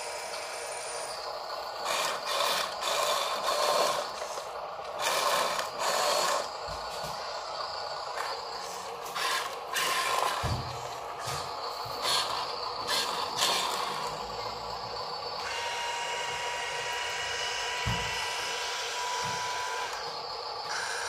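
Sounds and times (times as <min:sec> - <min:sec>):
steady hum: 0:00.0 - 0:21.0
toy truck motor and gears whirring: 0:00.0 - 0:21.0.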